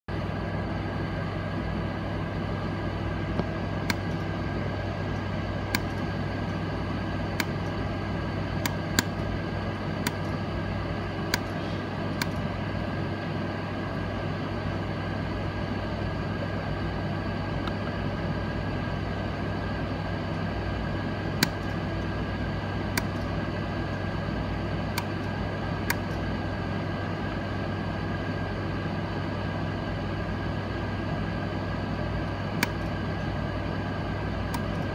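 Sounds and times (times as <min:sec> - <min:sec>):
steady low hum: 0:00.0 - 0:34.9
small sharp metallic clicks: 0:05.7 - 0:06.0, 0:07.4 - 0:07.8, 0:11.3 - 0:11.6, 0:21.4 - 0:21.8, 0:32.6 - 0:33.0.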